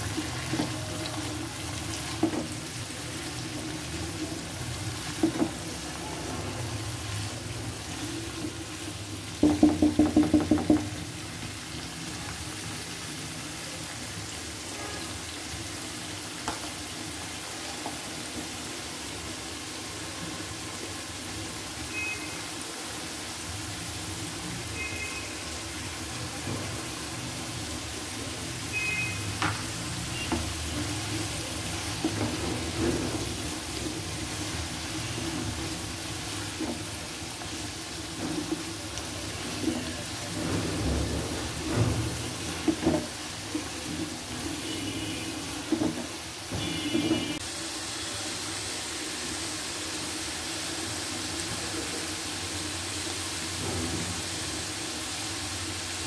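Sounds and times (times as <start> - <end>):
vegetables sizzling in a wok: 0.0 - 56.0
loud knocks: 9.4 - 11.0
wooden spatula stirring: 29.6 - 47.4.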